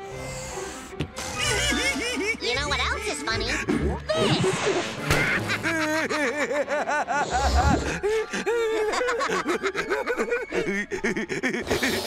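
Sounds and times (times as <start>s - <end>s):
cartoon characters cackling: 3.6s - 7.9s.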